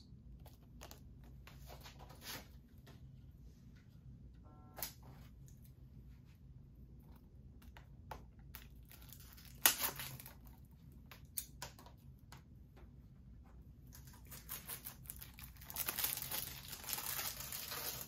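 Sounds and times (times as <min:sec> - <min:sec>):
plastic wrapping tearing: 0:08.6 - 0:10.6, 0:13.9 - 0:18.0.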